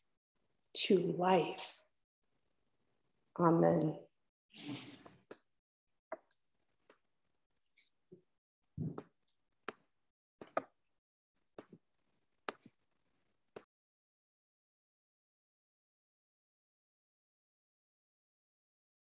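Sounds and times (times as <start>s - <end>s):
microphone handling clicks and knocks: 8.8s - 9.1s.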